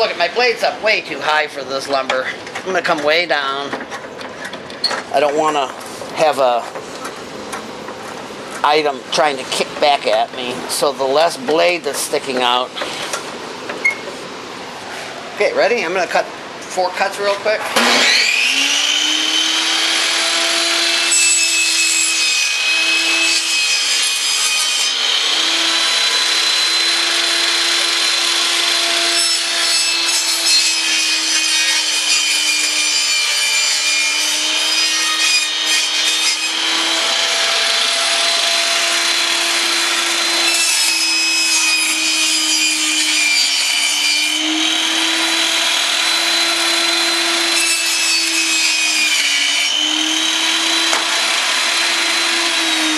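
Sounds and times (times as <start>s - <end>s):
table saw cutting wood: 17.2s - 52.9s.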